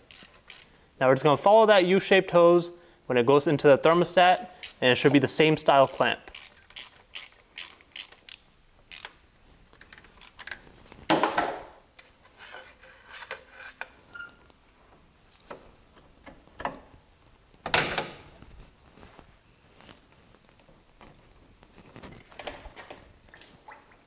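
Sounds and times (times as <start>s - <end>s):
scraping sounds: 12.0s - 14.1s.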